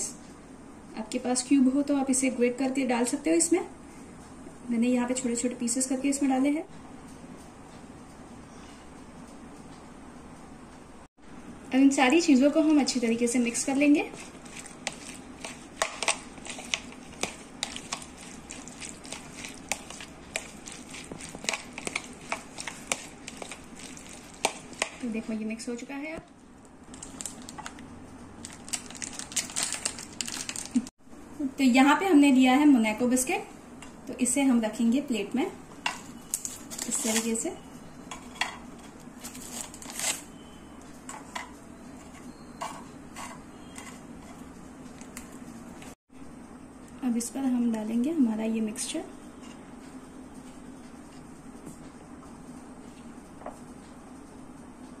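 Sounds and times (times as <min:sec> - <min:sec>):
steady low hum: 0:00.0 - 0:55.0
spoon stirring wet food: 0:12.6 - 0:25.1.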